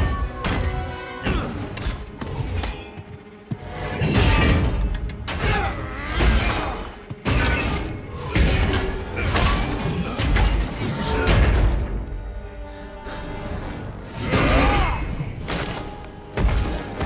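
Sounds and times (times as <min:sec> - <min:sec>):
orchestral film score: 0:00.0 - 0:17.0.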